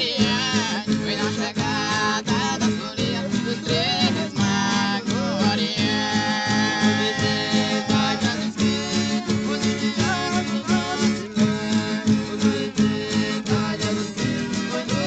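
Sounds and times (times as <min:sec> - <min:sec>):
strummed guitars folk music: 0:00.0 - 0:15.0.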